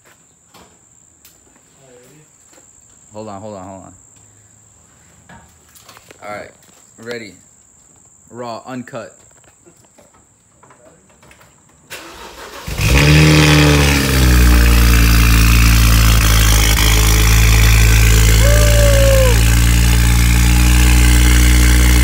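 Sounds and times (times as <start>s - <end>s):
car engine starting and idling: 11.9s - 22.0s.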